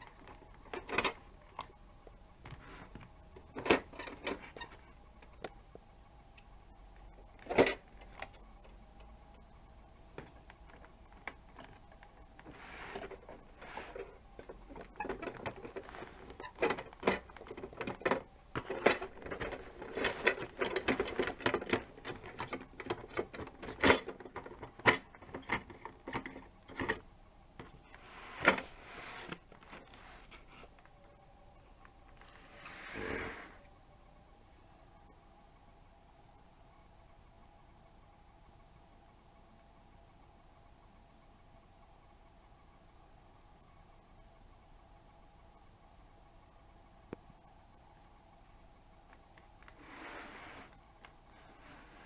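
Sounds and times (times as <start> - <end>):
crackling and rattling: 0.0 - 35.8.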